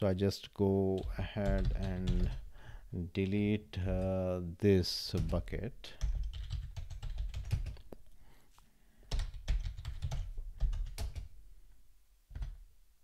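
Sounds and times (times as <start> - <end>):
typing on computer keyboard: 5.2 - 7.9, 9.1 - 11.3.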